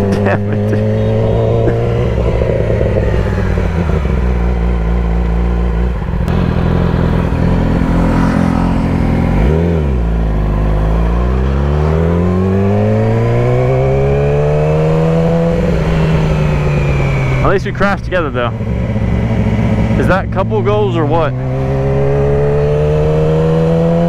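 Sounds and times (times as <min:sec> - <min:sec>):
motorcycle engine revving: 0:00.0 - 0:24.0
wind rushing: 0:00.8 - 0:04.9.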